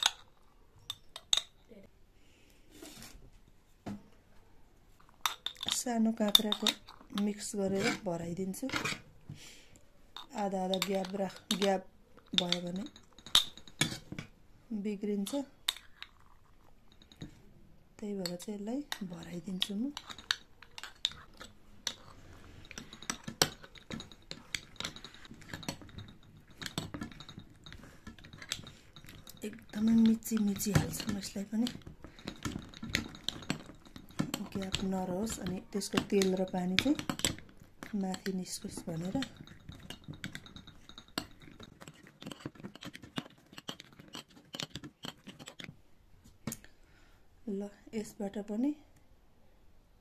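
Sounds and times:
metal spoon clicking on glass jar: 0.0s - 1.6s
spoon tapping glass jar: 0.0s - 1.6s, 10.2s - 14.0s, 18.2s - 42.9s
metal spoon clinking on ceramic bowl: 5.2s - 7.4s, 16.9s - 17.4s, 18.2s - 45.6s.

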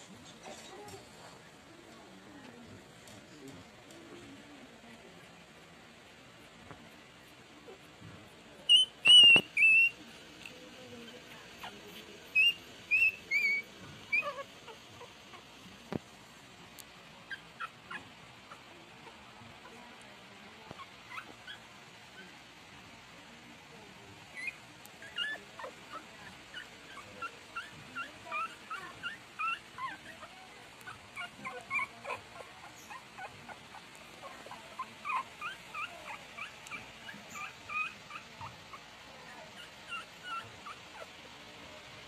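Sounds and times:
puppies whimpering: 8.7s - 10.0s, 11.6s - 15.6s, 24.3s - 38.8s, 39.5s - 41.2s.

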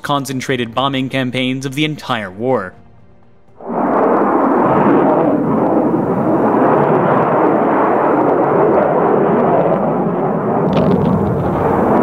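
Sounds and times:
rumbling roar: 3.6s - 12.0s.

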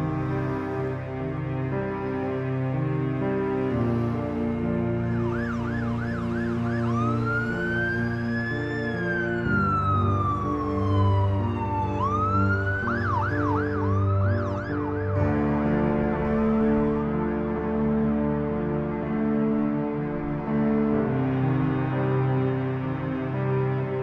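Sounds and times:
siren yelping and wailing: 5.3s - 15.2s.

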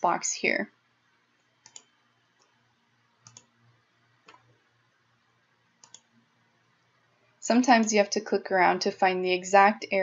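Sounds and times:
faint computer mouse clicks: 1.6s - 2.6s, 3.2s - 3.5s, 5.8s - 6.1s.

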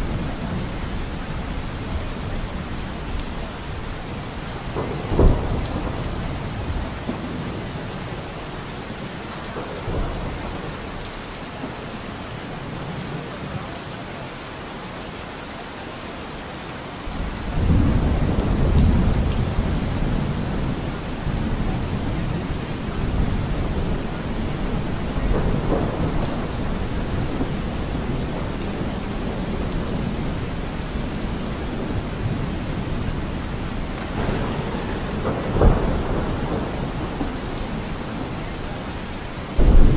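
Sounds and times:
thunder rumbling: 0.0s - 8.3s, 17.1s - 39.9s
steady rain falling: 0.0s - 39.9s.

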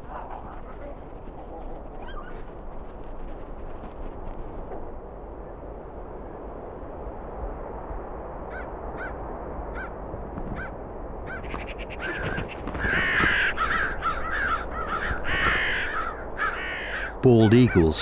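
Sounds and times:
steady low rush: 0.0s - 18.0s
birds cawing harshly: 8.5s - 18.0s.

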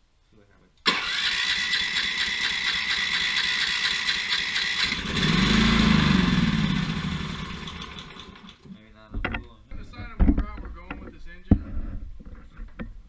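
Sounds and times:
electric starter whirring: 0.9s - 8.6s
engine firing and running: 0.9s - 8.6s.

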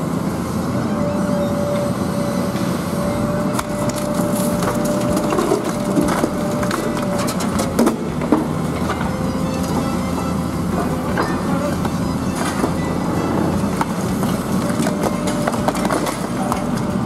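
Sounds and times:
machine engine hum: 0.0s - 17.0s
steady whine: 0.0s - 17.0s
falling rubble: 3.5s - 10.0s, 10.7s - 17.0s
concrete cracking and crunching: 3.6s - 8.1s.

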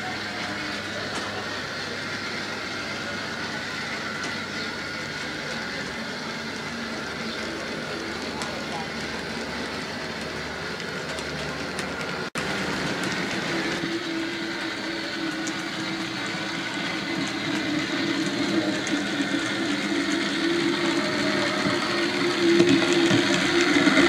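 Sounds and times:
model train motors whirring: 0.0s - 24.0s
wheels clicking over rail joints: 0.0s - 24.0s.

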